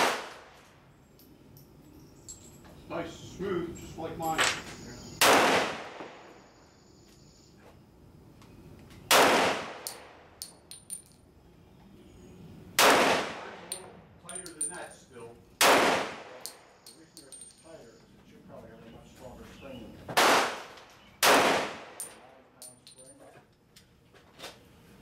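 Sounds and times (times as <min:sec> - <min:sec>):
pistol shots: 0:00.0 - 0:00.5, 0:05.2 - 0:06.3, 0:09.1 - 0:10.2, 0:12.8 - 0:13.9, 0:15.6 - 0:16.7, 0:20.2 - 0:22.2.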